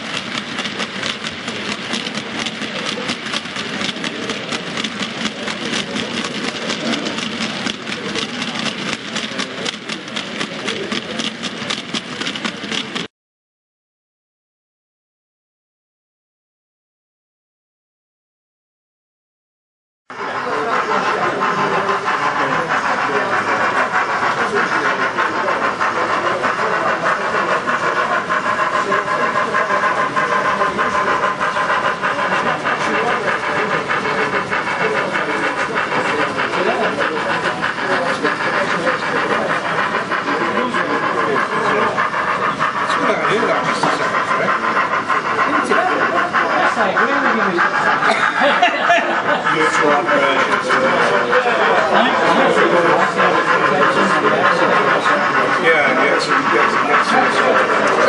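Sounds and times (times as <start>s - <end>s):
metal wheels clicking over rails: 0.0s - 13.1s
model train wagons rolling on track: 0.0s - 13.1s, 20.1s - 58.0s.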